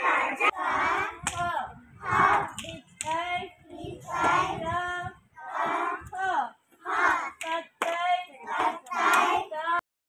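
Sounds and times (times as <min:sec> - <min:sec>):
children singing in unison: 0:00.0 - 0:02.8, 0:03.6 - 0:06.2, 0:06.8 - 0:07.4, 0:08.3 - 0:09.6
hand claps: 0:01.2 - 0:01.5, 0:02.6 - 0:03.2, 0:07.4 - 0:08.1.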